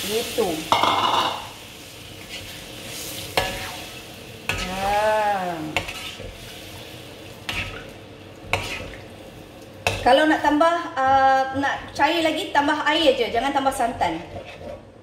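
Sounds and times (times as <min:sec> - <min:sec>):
low sizzle in pot: 0:00.0 - 0:15.0
spoon knocking against pot: 0:00.7 - 0:01.5.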